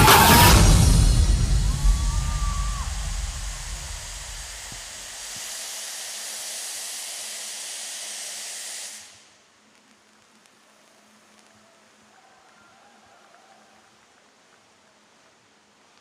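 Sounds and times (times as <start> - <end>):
special effects jet hissing: 0.0 - 9.4.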